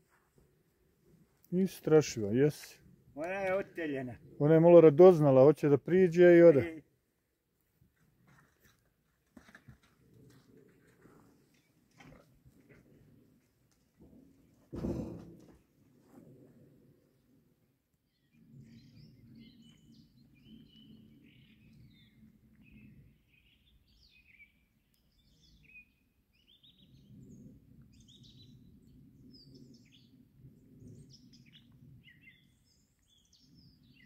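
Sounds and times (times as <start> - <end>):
birds chirping and twittering: 18.0 - 34.0.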